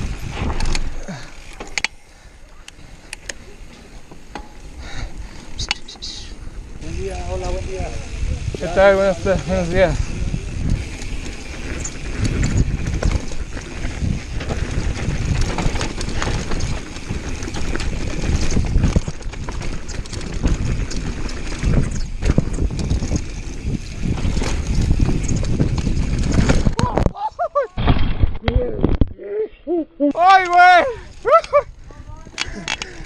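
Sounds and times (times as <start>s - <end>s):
wind rumbling on microphone: 0.0s - 1.4s, 4.9s - 27.2s
bike rattling over bumps: 0.0s - 27.0s
tyres on dirt: 0.0s - 28.8s.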